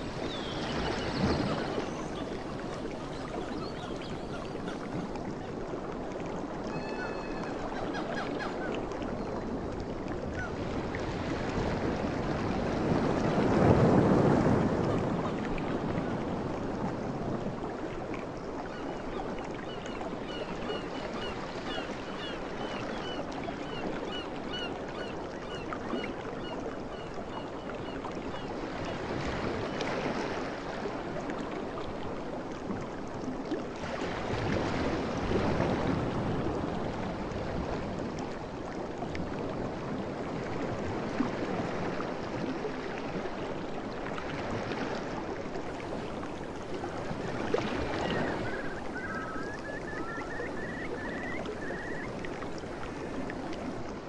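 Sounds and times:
sea waves washing onto shore: 0.0 - 22.6, 33.6 - 54.0.

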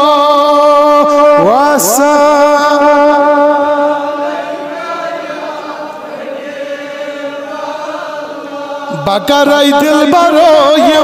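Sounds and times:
man chanting: 0.0 - 4.2, 8.8 - 11.0.

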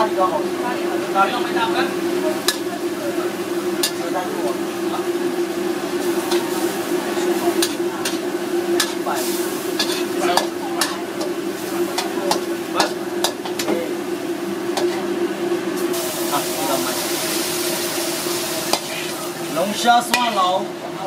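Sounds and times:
steady hum: 0.0 - 21.0
stir-fry sizzling: 0.0 - 21.0
spatula scraping a wok: 2.3 - 2.8, 5.9 - 13.7, 17.0 - 19.3.

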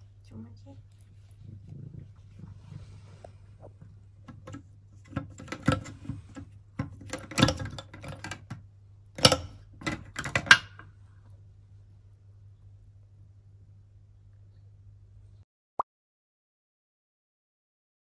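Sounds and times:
metal drain stopper rattling: 4.3 - 6.2, 6.8 - 8.6, 9.2 - 10.8.

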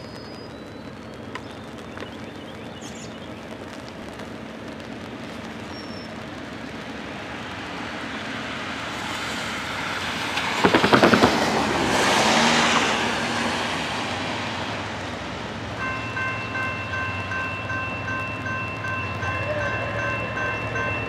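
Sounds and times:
vehicle tyre noise passing: 2.9 - 21.0.

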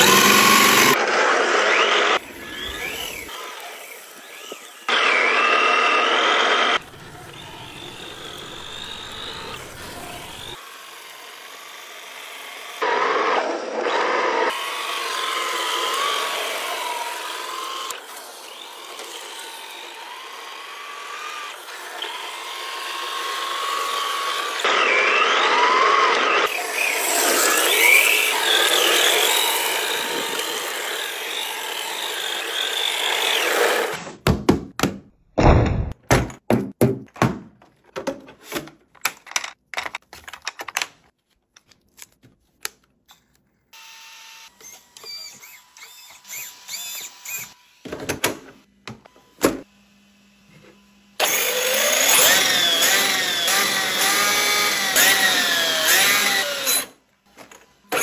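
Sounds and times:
electric motor whining: 0.0 - 10.6, 12.7 - 34.0, 43.8 - 47.8, 49.1 - 56.9
clicks and snaps of handling: 38.9 - 43.5.

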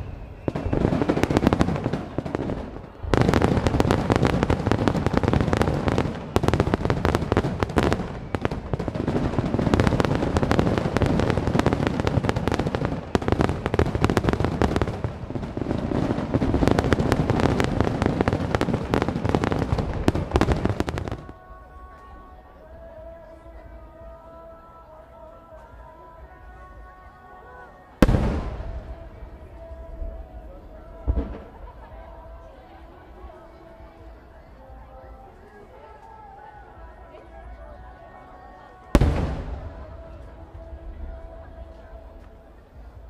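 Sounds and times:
fireworks bangs and crackling: 0.0 - 21.4, 28.0 - 32.7, 38.8 - 43.0.

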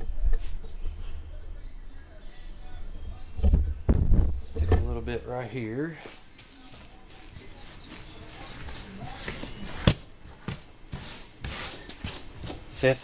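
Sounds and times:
faint bird chirps: 7.2 - 9.8.

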